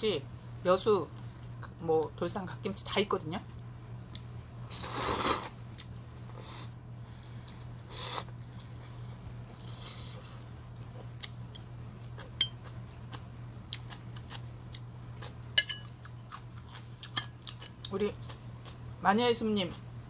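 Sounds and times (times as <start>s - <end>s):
steady low hum: 0.0s - 20.0s
noodles slurped: 4.7s - 5.6s
chewing: 9.5s - 18.8s
metal chopsticks clinking on bowl: 15.6s - 15.9s.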